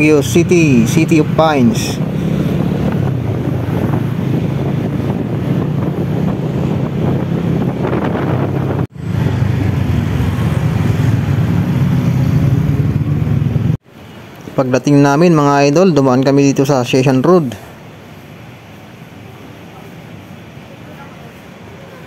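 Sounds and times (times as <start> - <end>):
wind buffeting microphone: 0.0 - 13.8.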